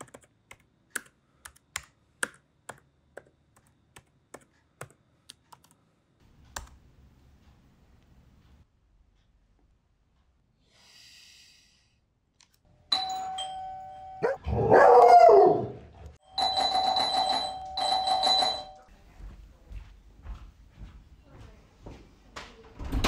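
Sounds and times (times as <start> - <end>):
electronic doorbell chime: 12.9 - 14.4, 16.2 - 18.9.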